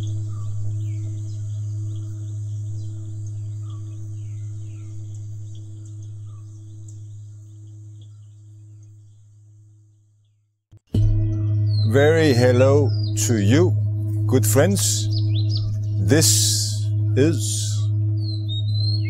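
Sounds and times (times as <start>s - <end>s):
high insect drone: 0.0s - 10.0s, 11.5s - 19.0s
bird chirps: 0.0s - 10.4s, 11.2s - 19.0s
deep bell ringing: 11.0s - 18.8s.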